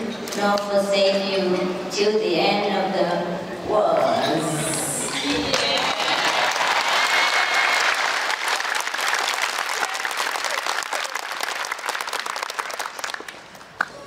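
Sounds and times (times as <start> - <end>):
audience applauding: 5.2 - 14.0.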